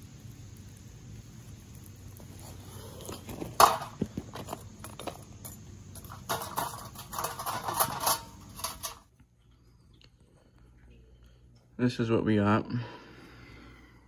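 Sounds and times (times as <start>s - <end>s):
crackles and pops from mold: 0.0s - 7.6s.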